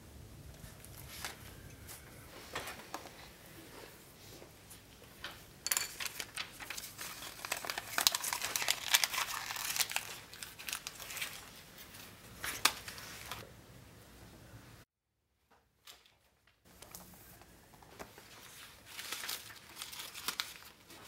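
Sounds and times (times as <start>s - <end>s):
paper crumpling: 5.9s - 13.4s, 18.0s - 21.0s.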